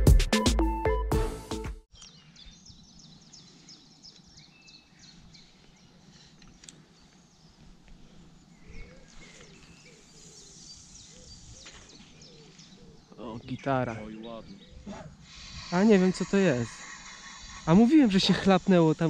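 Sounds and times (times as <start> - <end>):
birds chirping: 1.9 - 19.0.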